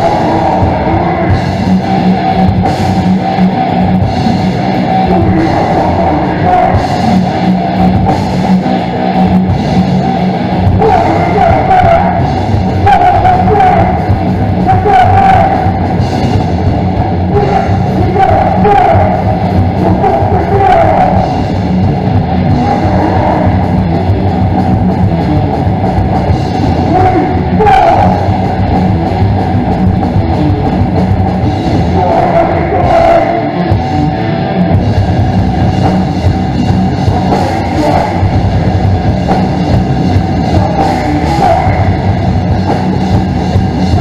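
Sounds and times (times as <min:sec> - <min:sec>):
drum kit: 0:00.0 - 0:44.0
electric guitar: 0:00.0 - 0:44.0
person shouting into microphone: 0:05.0 - 0:06.9, 0:10.8 - 0:15.8, 0:17.3 - 0:21.4, 0:22.5 - 0:23.7, 0:26.7 - 0:28.4, 0:31.8 - 0:33.6, 0:37.1 - 0:38.3, 0:40.5 - 0:42.2.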